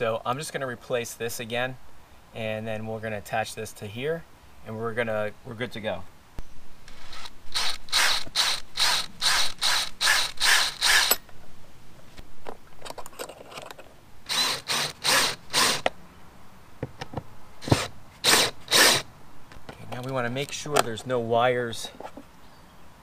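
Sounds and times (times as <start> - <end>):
drill clutch ratcheting: 6.9 - 11.2, 14.3 - 15.9, 17.6 - 19.0.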